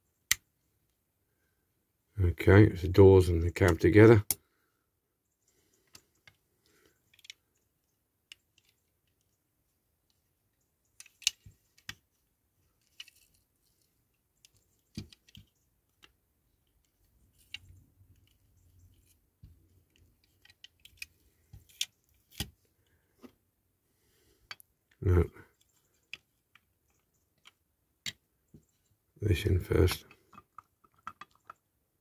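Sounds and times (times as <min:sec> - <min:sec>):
toy parts clicking and tapping: 0:07.0 - 0:09.4, 0:10.5 - 0:12.0, 0:14.4 - 0:22.6, 0:25.6 - 0:28.8, 0:29.9 - 0:31.7
handling rustle: 0:10.9 - 0:23.4.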